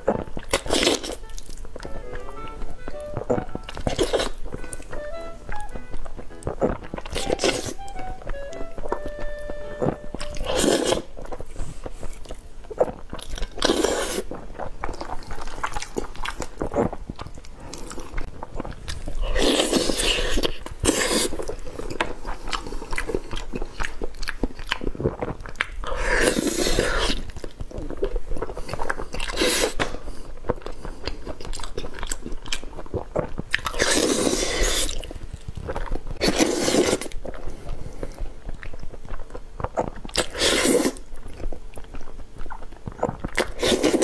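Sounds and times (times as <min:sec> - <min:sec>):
slurping noodles: 0:00.0 - 0:01.2, 0:03.0 - 0:04.4, 0:06.5 - 0:07.9, 0:09.8 - 0:23.5, 0:24.8 - 0:30.1, 0:33.0 - 0:38.3, 0:39.7 - 0:41.1, 0:42.5 - 0:44.0
wet chewing: 0:00.0 - 0:44.0
biting into food: 0:03.0 - 0:09.2, 0:42.4 - 0:44.0.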